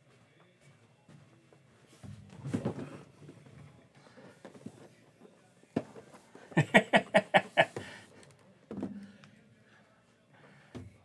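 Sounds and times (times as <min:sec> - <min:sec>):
person laughing: 0:06.6 - 0:08.0.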